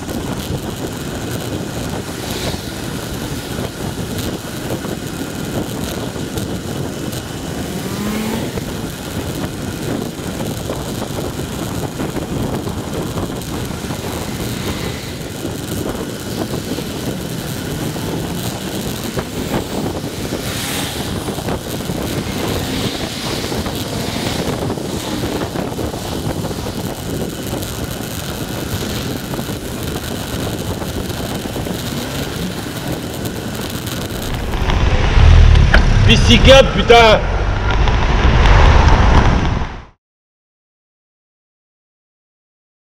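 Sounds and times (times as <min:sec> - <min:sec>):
traffic noise: 0:00.0 - 0:39.8
wind rush on microphone: 0:00.0 - 0:40.0.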